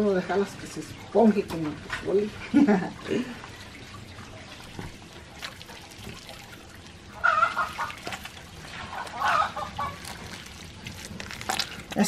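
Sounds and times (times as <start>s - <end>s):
wet squeezing of fruit pulp: 3.1s - 12.0s
chicken calling loudly: 7.2s - 8.0s, 9.0s - 10.0s.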